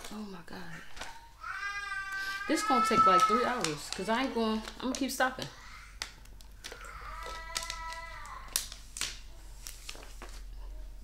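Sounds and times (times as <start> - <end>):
plastic bottle clicks and crinkles: 2.8 - 10.4.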